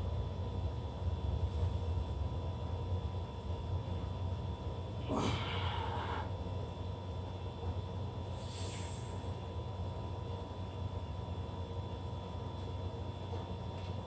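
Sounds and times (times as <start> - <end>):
steady low hum: 0.0 - 14.0
man's heavy breath out: 5.1 - 6.3.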